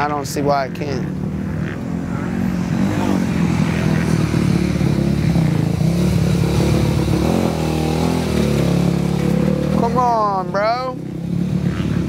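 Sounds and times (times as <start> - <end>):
motocross bike engine revving: 0.0 - 12.0.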